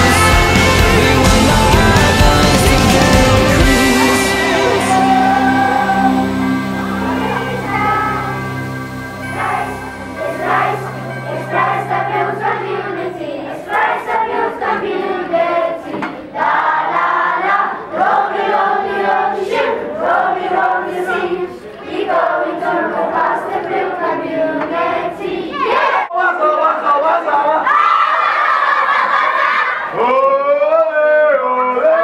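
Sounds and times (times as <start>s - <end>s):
steady low tone: 0.0s - 13.7s
choir singing: 0.0s - 26.6s, 27.4s - 30.1s.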